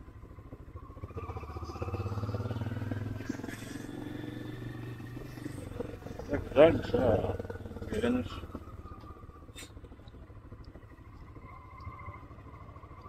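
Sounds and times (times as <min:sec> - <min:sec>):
vehicle engine revving up: 0:00.8 - 0:09.7.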